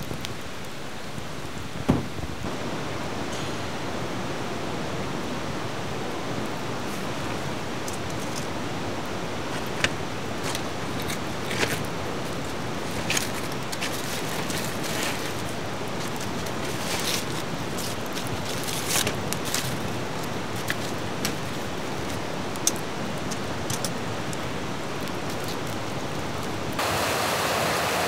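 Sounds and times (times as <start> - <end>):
wood fire crackling and popping: 0.0 - 2.5, 6.4 - 26.8.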